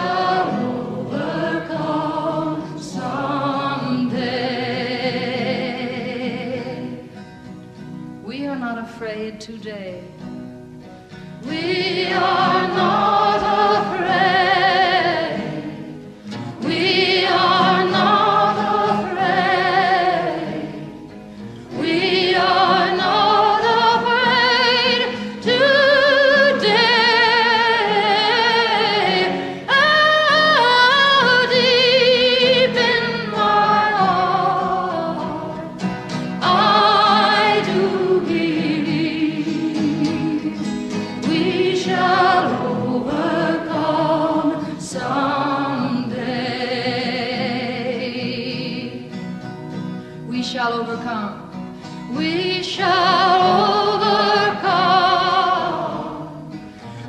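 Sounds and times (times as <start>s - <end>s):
woman singing with vibrato: 0.0s - 7.1s, 8.2s - 10.2s, 11.4s - 15.9s, 16.6s - 20.9s, 21.7s - 49.1s, 50.3s - 56.5s.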